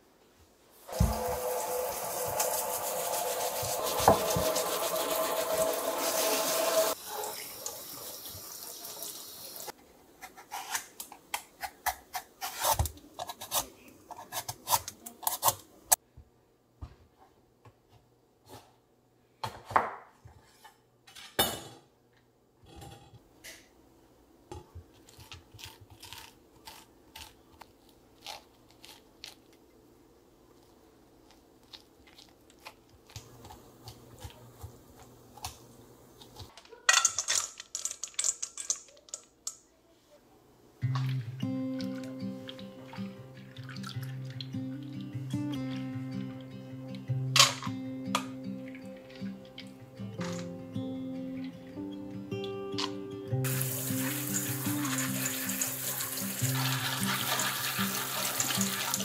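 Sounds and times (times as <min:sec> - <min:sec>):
peeler shaving pumpkin skin: 0:00.9 - 0:07.0, 0:24.9 - 0:29.6
metal spoon scraping pumpkin: 0:11.6 - 0:15.6.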